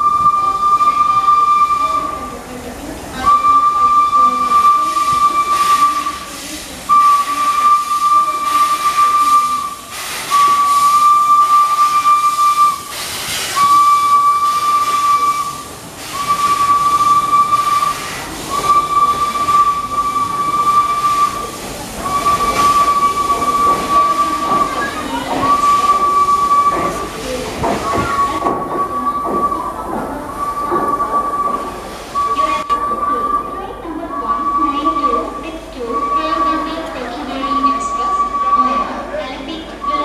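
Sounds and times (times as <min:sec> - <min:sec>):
steam whistle blasts: 0:00.0 - 0:02.2, 0:03.2 - 0:06.3, 0:06.9 - 0:27.0, 0:37.4 - 0:38.9
steam hissing: 0:03.3 - 0:33.6.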